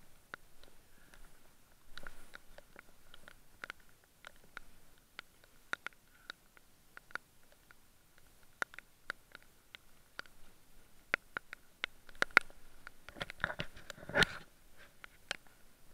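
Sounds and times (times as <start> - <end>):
camera being handled: 13.1 - 14.5.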